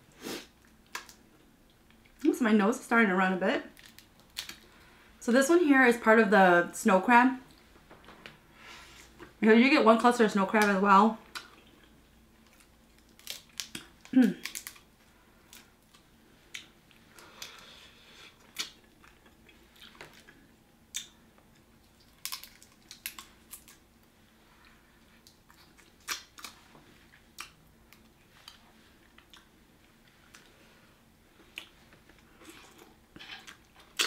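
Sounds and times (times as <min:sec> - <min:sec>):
crab shell cracking: 0:03.8 - 0:04.7, 0:12.4 - 0:14.9, 0:22.0 - 0:23.8
chewing: 0:18.4 - 0:21.2, 0:25.1 - 0:30.6.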